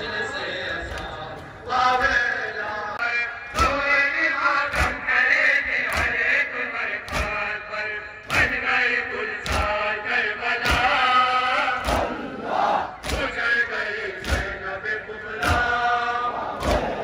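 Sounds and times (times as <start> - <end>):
mourning chant: 0.0 - 17.0
chest beating slaps: 5.8 - 6.4, 7.0 - 7.5, 9.4 - 9.9, 10.6 - 11.1, 11.8 - 12.2, 12.9 - 13.4, 14.2 - 14.7, 15.4 - 17.0.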